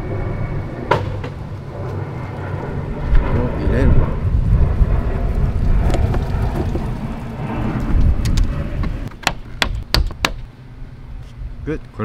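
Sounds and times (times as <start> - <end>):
wind rumble on microphone: 0.0 - 9.1.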